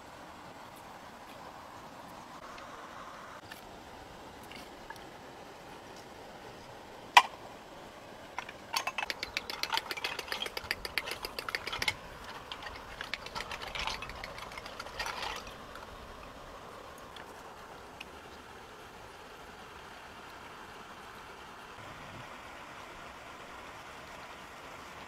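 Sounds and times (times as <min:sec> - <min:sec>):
snail shells clattering and crunching: 0:08.4 - 0:16.0.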